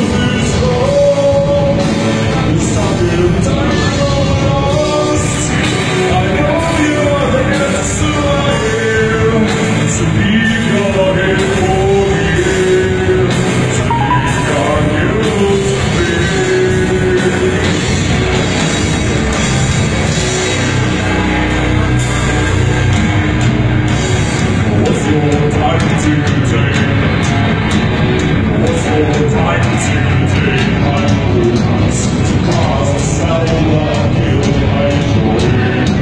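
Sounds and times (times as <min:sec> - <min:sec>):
rock band playing live: 0:00.0 - 0:36.0
person singing long notes: 0:13.9 - 0:16.6.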